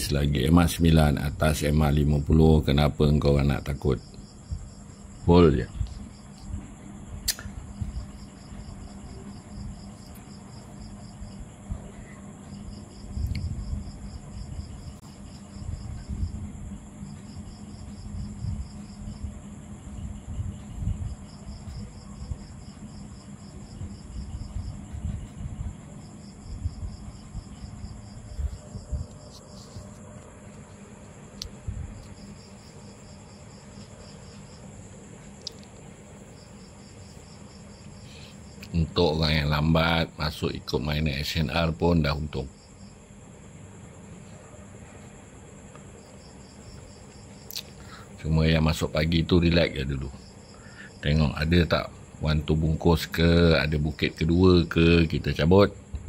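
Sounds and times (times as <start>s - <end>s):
constant high hiss: 0.0s - 56.0s
insect chirping: 0.0s - 56.0s
sharp clicks: 7.2s - 7.6s
low rumble: 23.6s - 32.5s.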